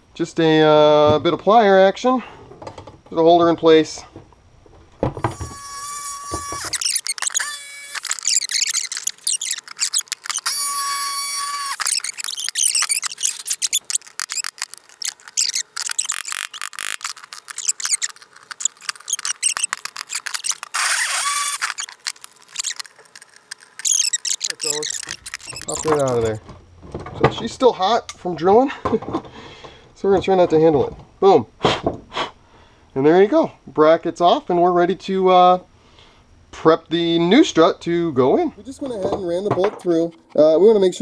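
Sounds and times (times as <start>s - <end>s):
high squeals: 5.2s - 26.4s.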